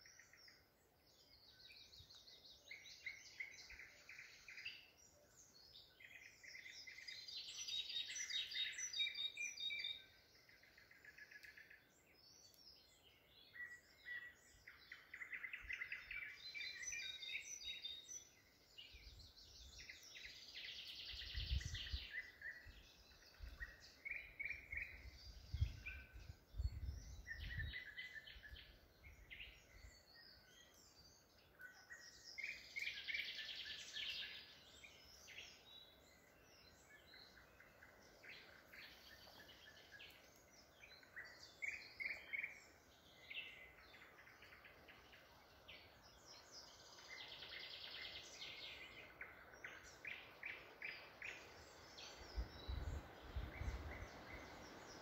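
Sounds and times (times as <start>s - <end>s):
songbirds singing trills: 0.0s - 55.0s.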